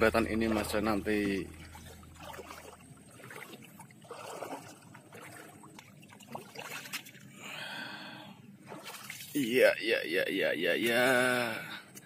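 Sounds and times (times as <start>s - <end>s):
water sloshing around wading legs: 0.0s - 7.4s, 8.6s - 9.5s.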